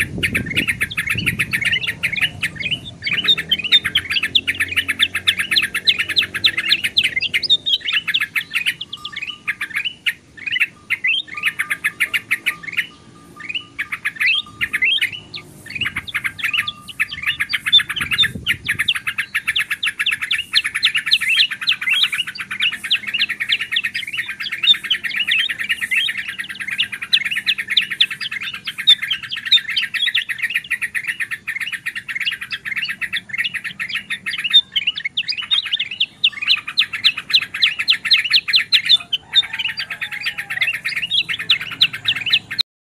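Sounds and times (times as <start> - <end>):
birds chirping rapidly: 0.0 - 42.7.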